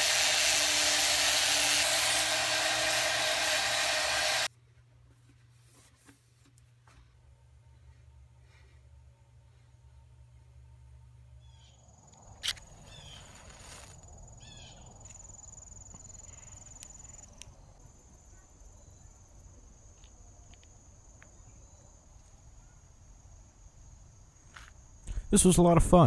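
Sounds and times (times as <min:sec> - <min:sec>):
insects trilling: 0:11.4 - 0:25.1.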